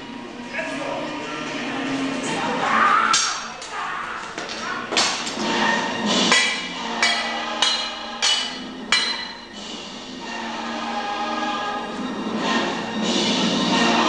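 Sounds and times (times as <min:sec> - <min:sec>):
voices singing sustained notes: 0:05.4 - 0:14.0
sharp percussive hits: 0:06.1 - 0:09.6.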